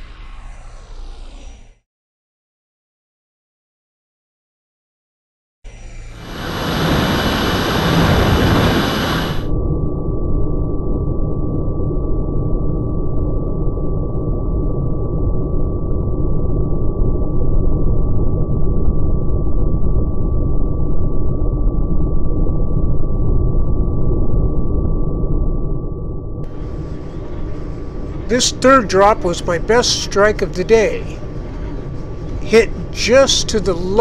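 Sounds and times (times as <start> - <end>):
wind rush: 0.0 - 1.6, 6.2 - 9.5, 26.4 - 34.0
model airplane motor drone: 5.7 - 9.5.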